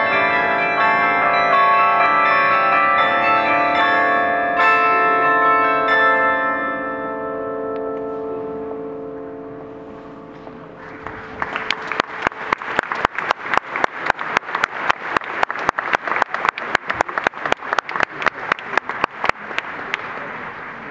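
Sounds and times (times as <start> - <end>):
carillon bells ringing: 0.0 - 11.4
audience clapping: 10.8 - 20.5.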